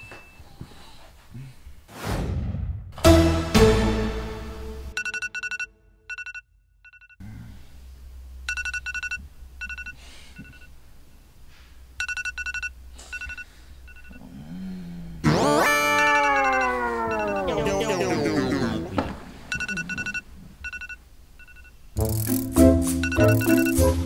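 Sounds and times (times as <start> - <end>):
electronic alarm beeping: 5.0 - 7.2, 8.5 - 10.7, 12.0 - 14.2, 15.9 - 21.7, 23.0 - 24.0
loud drawn-out falling tone: 15.3 - 19.1.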